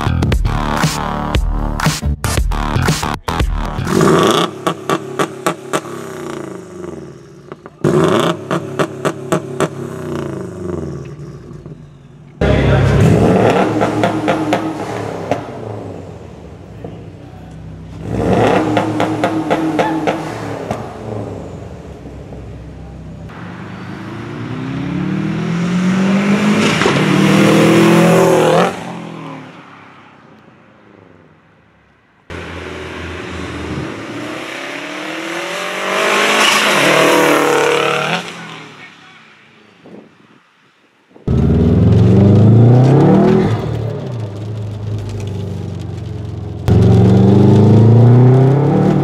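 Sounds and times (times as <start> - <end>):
car engine revving: 2.5 - 30.1, 32.3 - 39.0, 41.3 - 49.0
car accelerating past: 23.4 - 30.1, 32.3 - 38.8, 41.3 - 49.0.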